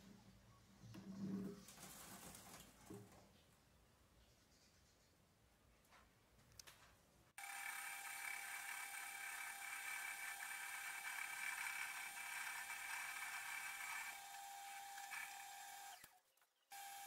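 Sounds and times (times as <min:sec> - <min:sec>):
metal lathe whining: 0:07.4 - 0:16.1.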